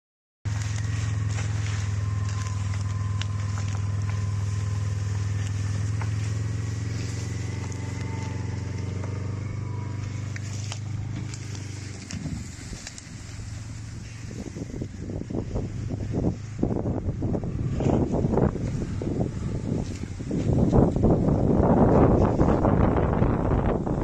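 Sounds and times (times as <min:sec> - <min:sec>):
faint whine: 0:00.5 - 0:23.8
utility vehicle engine running: 0:00.5 - 0:24.0.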